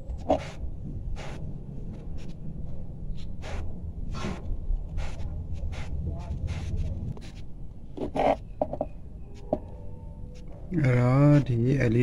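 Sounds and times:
low steady rumble: 0:00.0 - 0:08.0.

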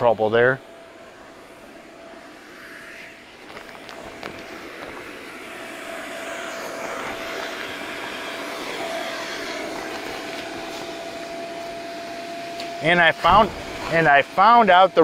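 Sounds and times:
blower whine over rushing air: 0:00.0 - 0:15.0.

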